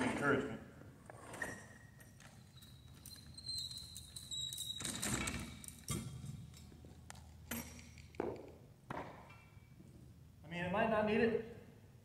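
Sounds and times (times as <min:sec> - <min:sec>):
thin high squeal: 0:01.3 - 0:05.4.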